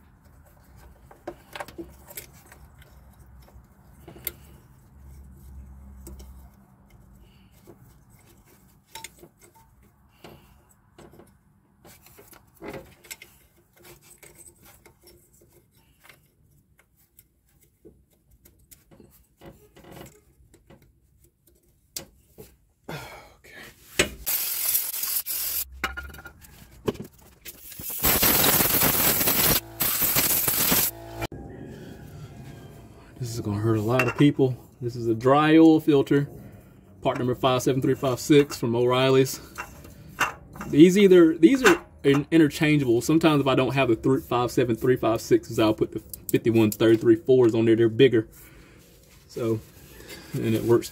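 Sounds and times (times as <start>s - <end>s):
metallic clinks and scrapes: 0.2s - 22.4s
loud hissing: 27.7s - 31.2s.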